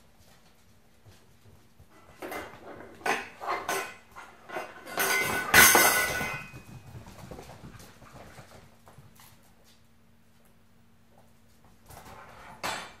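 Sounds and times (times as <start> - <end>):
metal bowl clattering on wooden floor: 2.0 - 7.7.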